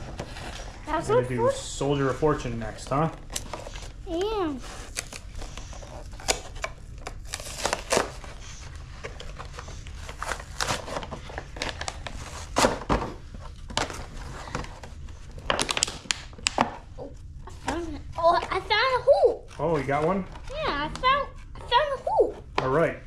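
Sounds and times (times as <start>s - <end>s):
cardboard crinkling and tearing: 3.3s - 16.6s.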